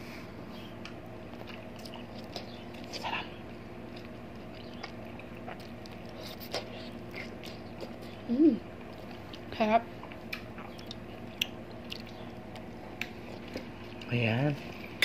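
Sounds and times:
steady low hum: 0:00.0 - 0:15.0
person humming: 0:08.3 - 0:08.6.

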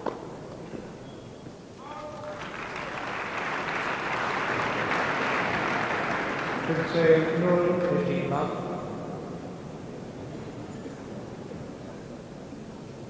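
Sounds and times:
crowd applauding: 0:01.8 - 0:08.0.

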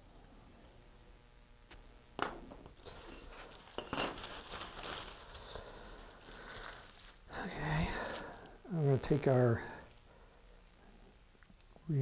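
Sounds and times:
plastic sheet rustling: 0:02.6 - 0:08.4.

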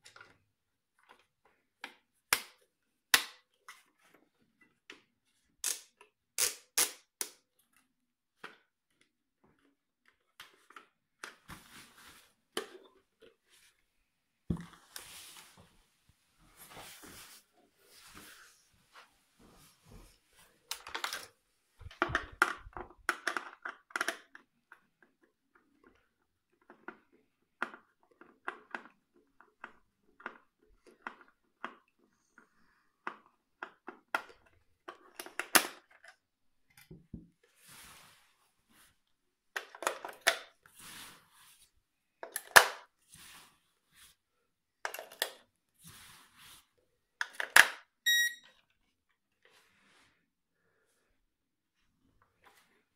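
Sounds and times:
short electronic beep: 0:48.1 - 0:48.5.

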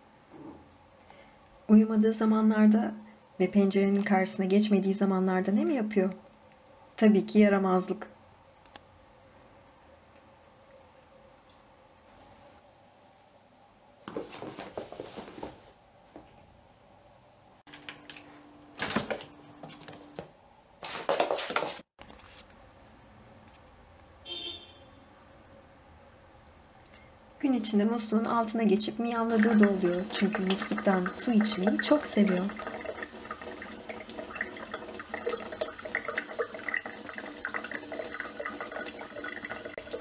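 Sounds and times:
rug scuffing on wooden floor: 0:14.0 - 0:16.3, 0:20.2 - 0:22.4
tap water splashing into sink: 0:29.3 - 0:40.0.

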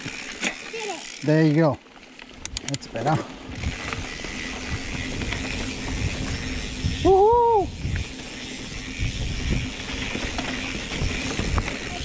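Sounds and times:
wind and tyres rumbling: 0:00.0 - 0:12.0
child calling out: 0:00.7 - 0:01.1.

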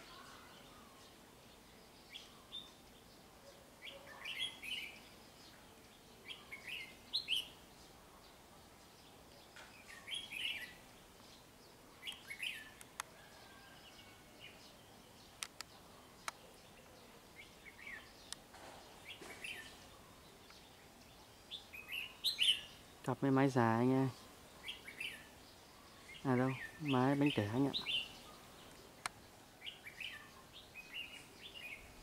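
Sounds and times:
sharp clicks: 0:15.4 - 0:16.4.

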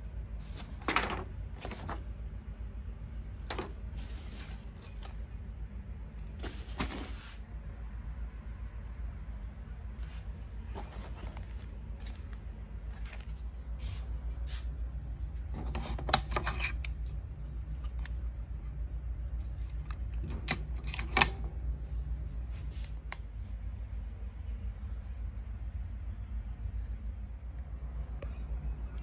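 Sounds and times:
packaging rustling: 0:10.7 - 0:13.5.

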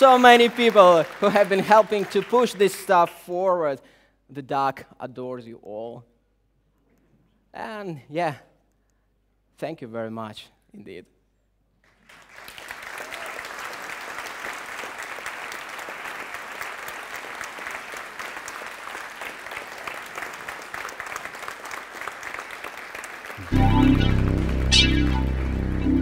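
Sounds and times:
audience applauding: 0:00.0 - 0:03.0, 0:11.9 - 0:26.0.

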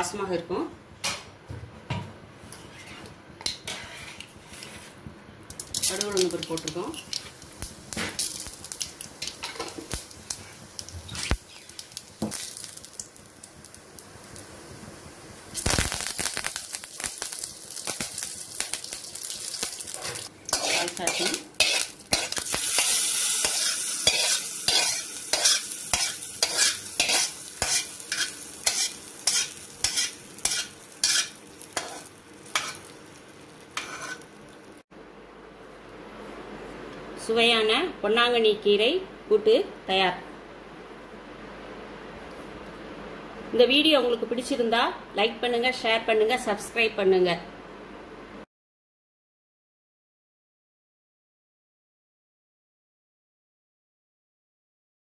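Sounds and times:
seeds sizzling and popping in oil: 0:05.5 - 0:34.8.

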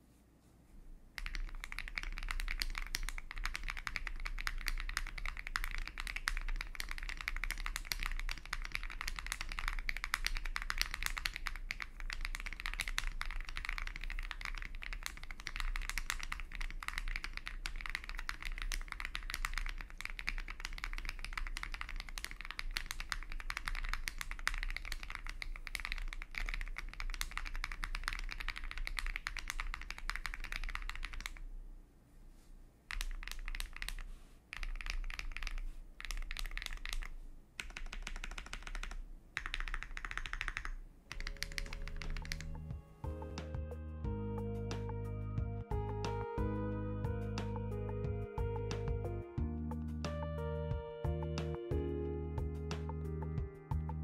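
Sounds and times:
keyboard typing: 0:01.2 - 0:31.4, 0:32.9 - 0:45.0, 0:45.6 - 0:49.1.

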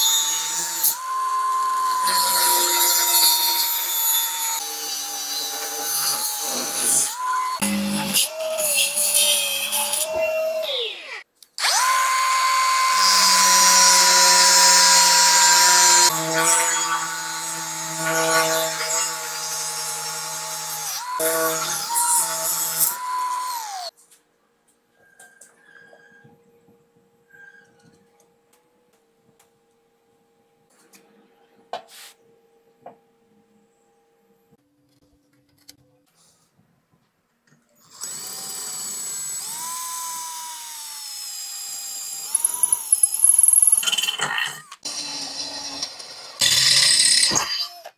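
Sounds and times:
faint scrape: 0:31.8 - 0:32.2.

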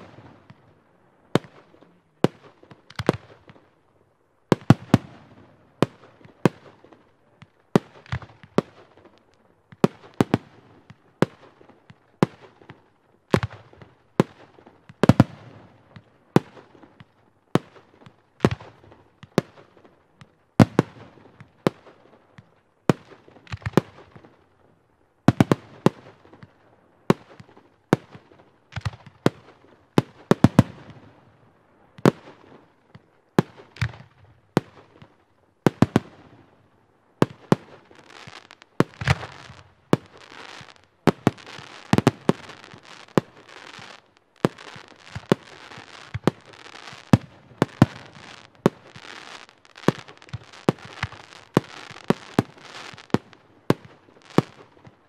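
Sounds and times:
firework shots with hiss: 0:00.0 - 0:00.8, 0:37.2 - 0:54.9
dense firework crackling: 0:00.0 - 0:03.8, 0:25.4 - 0:55.0.

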